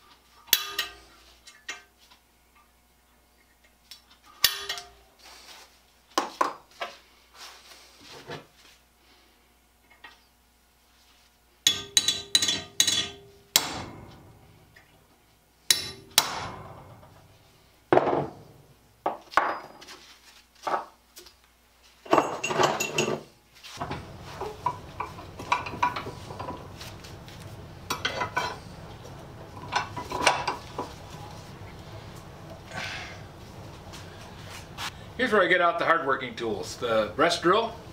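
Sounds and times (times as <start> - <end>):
steady low hum: 0.0 - 37.9
metal bar clinking and knocking: 0.5 - 1.9, 11.7 - 13.8.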